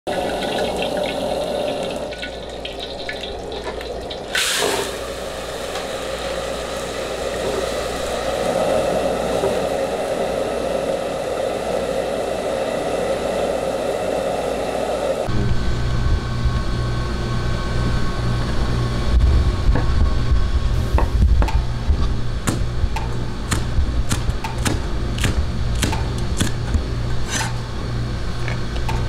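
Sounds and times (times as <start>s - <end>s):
water boiling with steam rushing: 0.1s - 15.3s.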